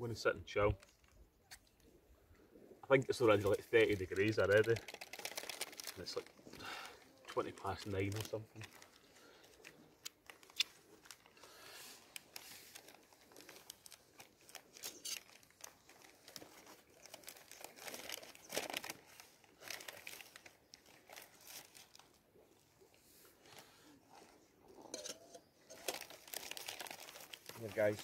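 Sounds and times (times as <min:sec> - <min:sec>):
plastic wrapping crinkling: 0:03.1 - 0:22.2, 0:25.6 - 0:28.0.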